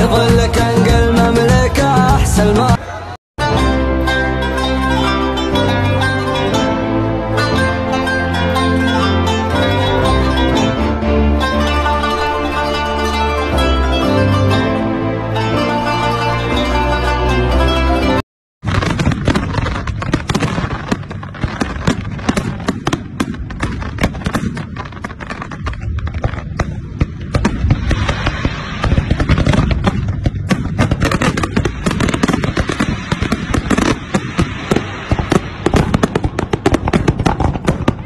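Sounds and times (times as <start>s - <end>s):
fireworks bangs and crackling: 18.6s - 38.0s.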